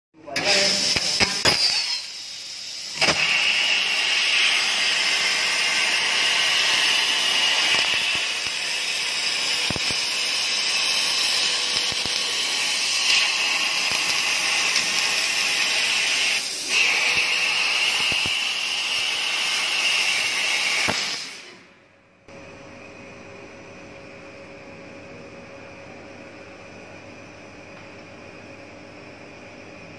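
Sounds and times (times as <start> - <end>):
laser cutter gas jet hissing: 0.4 - 21.6.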